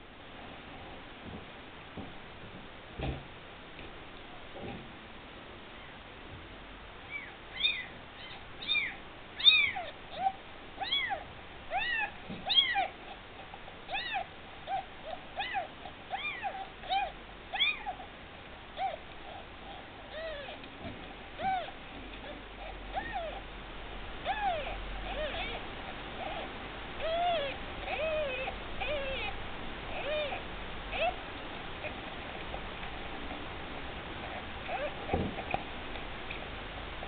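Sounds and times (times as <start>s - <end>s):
kitten mewing: 7.1s - 13.2s, 13.9s - 18.0s, 21.4s - 23.4s, 24.2s - 31.2s, 34.2s - 35.6s.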